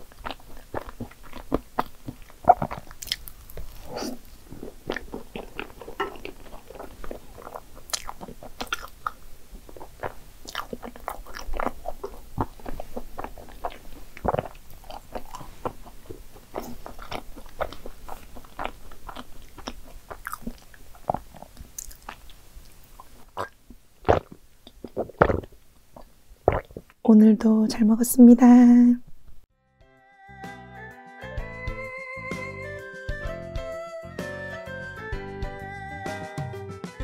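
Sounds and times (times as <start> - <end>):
mouth clicks and smacks: 0.0 - 27.1
wet chewing: 0.0 - 27.1
sip from a glass: 3.8 - 4.3.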